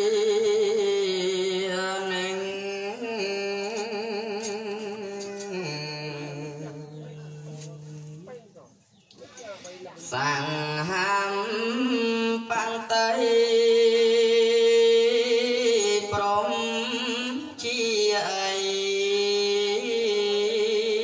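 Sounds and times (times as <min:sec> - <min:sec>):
monk chanting into a microphone: 0:00.0 - 0:08.3, 0:10.0 - 0:21.0.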